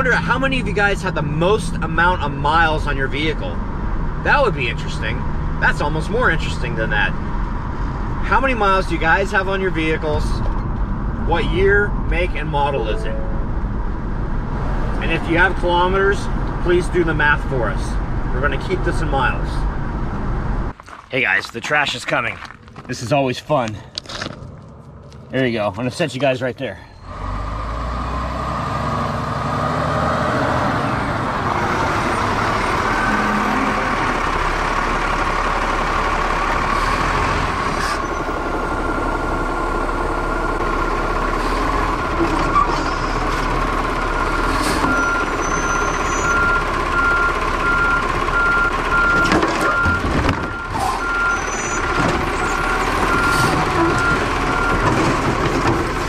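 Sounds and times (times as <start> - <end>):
garbage truck engine and hydraulics: 26.9 - 56.0
steady beeping alarm: 44.2 - 54.9.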